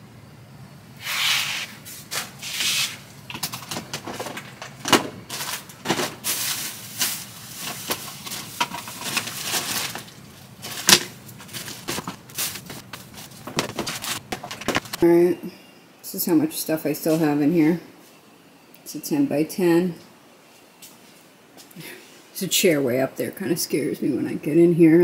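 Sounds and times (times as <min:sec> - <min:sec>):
plastic bin rustling: 0:02.0 - 0:15.0
items clicking and knocking: 0:03.3 - 0:15.0.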